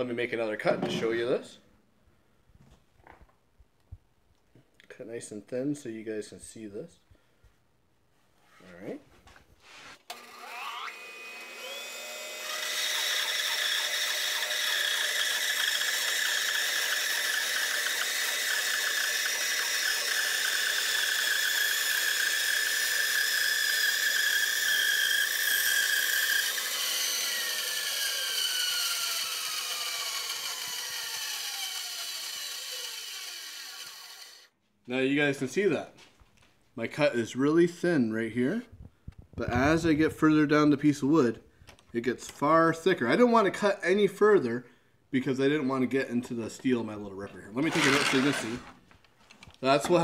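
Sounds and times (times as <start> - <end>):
bandsaw whining: 10.0 - 34.5, 47.6 - 48.8.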